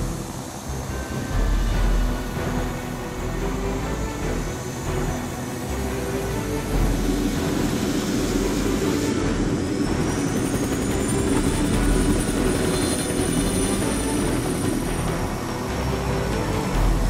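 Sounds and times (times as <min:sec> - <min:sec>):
helicopter rotor and engine drone: 0:00.0 - 0:17.0
high whine: 0:00.0 - 0:17.0.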